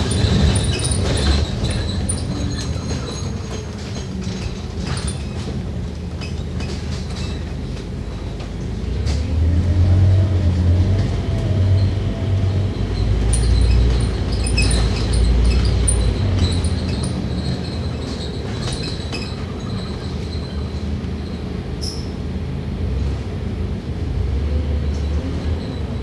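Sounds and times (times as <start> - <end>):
bodywork ticks and rattles: 0.0 - 9.3, 12.7 - 22.0
bus engine rumble: 0.0 - 26.0.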